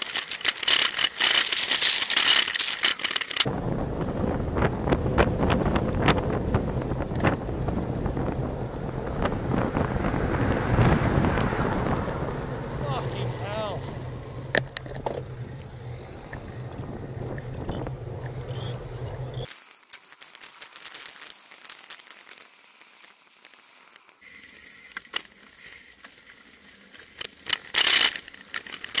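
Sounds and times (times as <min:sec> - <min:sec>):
scattered clicks: 0:00.0 - 0:03.5
crackling wind: 0:00.0 - 0:29.0
low engine hum: 0:03.5 - 0:19.5
road hiss: 0:08.8 - 0:14.6, 0:18.6 - 0:27.5
loud rush of noise: 0:08.8 - 0:14.7.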